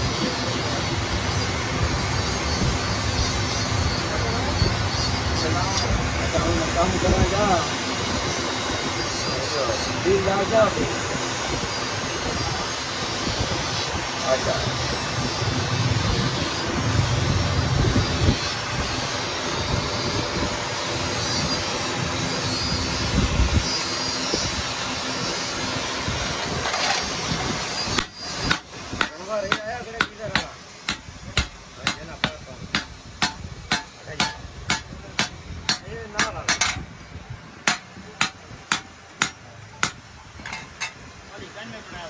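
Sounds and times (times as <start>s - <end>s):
air roaring into forge fire: 0.0s - 42.0s
hammer striking chisel on metal: 27.9s - 36.9s, 37.6s - 41.0s.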